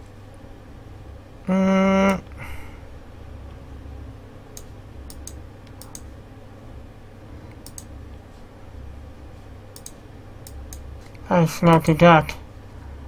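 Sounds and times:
low steady hum: 0.0s - 13.0s
computer mouse clicking: 4.6s - 6.1s, 7.5s - 7.9s, 9.8s - 11.9s.

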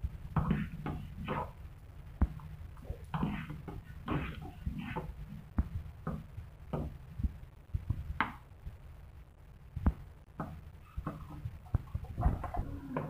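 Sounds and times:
low steady rumble: 0.0s - 13.0s.

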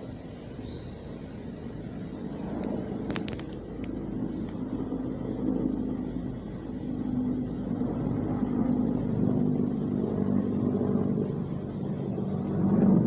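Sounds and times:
helicopter drone overhead: 0.0s - 13.0s.

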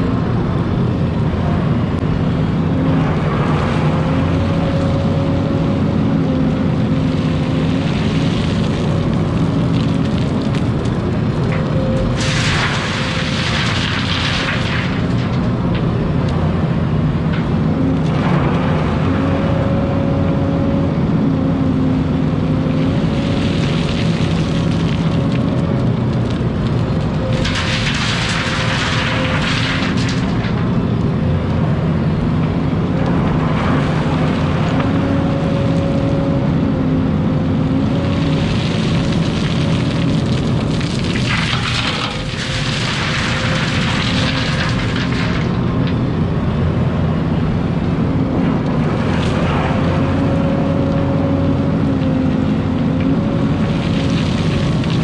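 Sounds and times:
excavator diesel engine running: 0.0s - 55.0s
soil pouring into truck bed: 38.2s - 45.5s.

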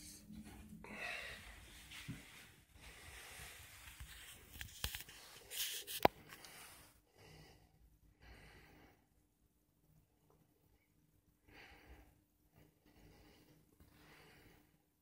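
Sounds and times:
breathy hiss and rustling: 0.4s - 7.1s.

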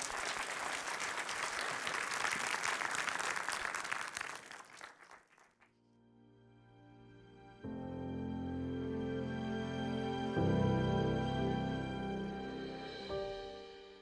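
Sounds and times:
audience applauding: 0.0s - 5.7s
soft music: 5.8s - 14.0s.

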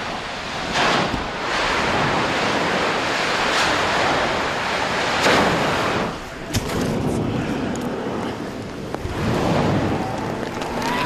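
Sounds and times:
wind buffeting microphone: 0.0s - 11.0s
rushing roar of steam: 7.1s - 11.0s.

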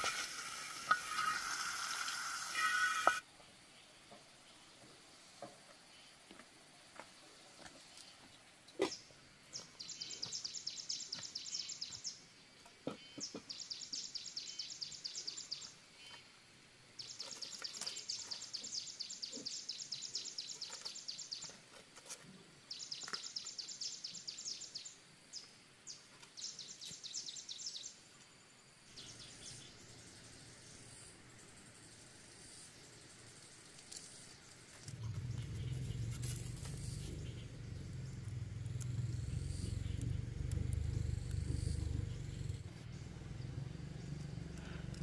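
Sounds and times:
animal pulsing trill: 34.9s - 44.8s.

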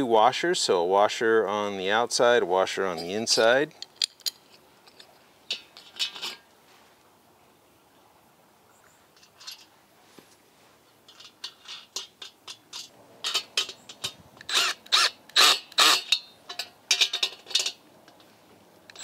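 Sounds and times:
metal nuts and bolts clinking: 2.8s - 6.5s, 9.2s - 9.7s, 11.1s - 19.0s.

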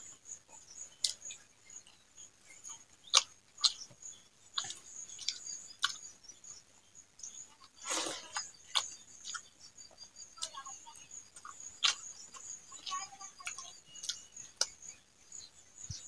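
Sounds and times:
wet eating clicks and smacks: 3.0s - 6.1s, 7.2s - 9.5s, 11.3s - 14.8s.

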